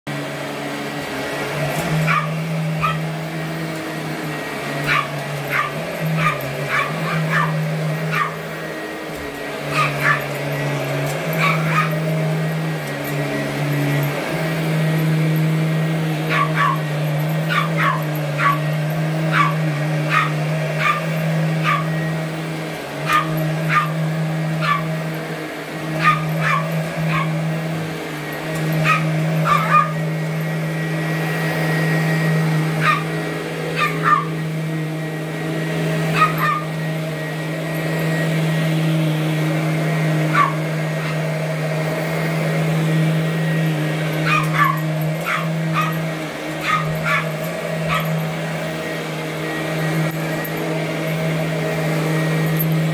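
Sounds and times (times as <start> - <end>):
vacuum cleaner motor humming: 0.1 - 52.9
small dog barking: 2.0 - 3.1, 4.8 - 8.5, 9.6 - 10.4, 11.3 - 12.2, 16.2 - 22.0, 23.0 - 25.0, 26.0 - 27.4, 28.8 - 30.0, 32.8 - 33.1, 33.7 - 34.4, 36.1 - 36.8, 40.3 - 41.3, 44.2 - 48.2.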